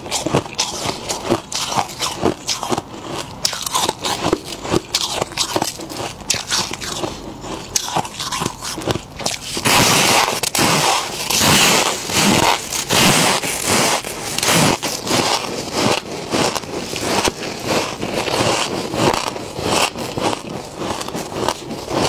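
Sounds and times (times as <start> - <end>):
frost crunching in chewing: 0.0 - 22.0.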